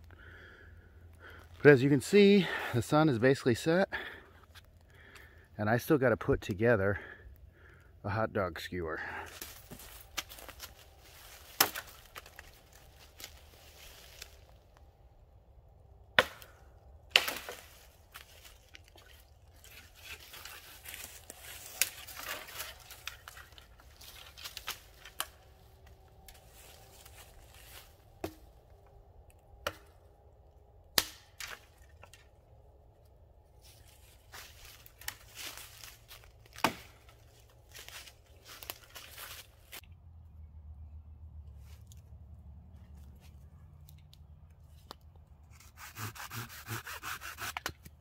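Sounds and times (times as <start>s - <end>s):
twigs and leaves rustling: 9.0s - 15.2s, 16.2s - 30.1s, 31.0s - 39.9s
dry wood snapping: 9.3s - 13.5s, 16.1s - 27.2s, 30.8s - 32.3s, 34.4s - 39.9s.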